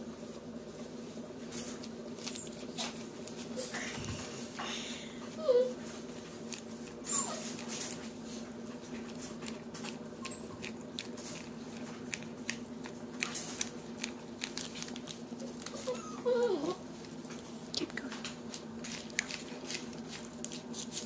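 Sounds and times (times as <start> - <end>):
dog whining: 4.6 - 6.0, 7.0 - 8.0, 10.1 - 10.9, 15.4 - 16.9.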